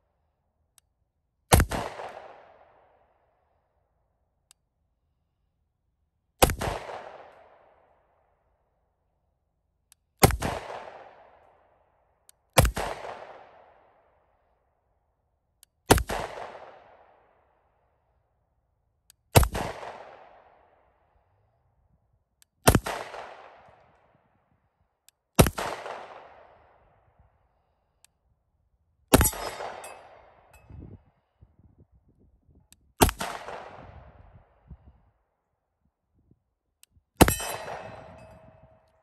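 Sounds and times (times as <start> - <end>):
pistol shots with echo: 1.5 - 2.7, 25.4 - 26.6, 29.1 - 30.6, 33.0 - 34.0, 37.2 - 38.8.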